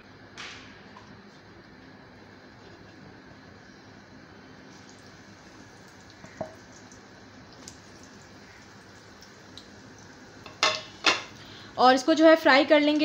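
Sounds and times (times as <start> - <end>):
hot oil sizzling and crackling: 4.5 - 13.0.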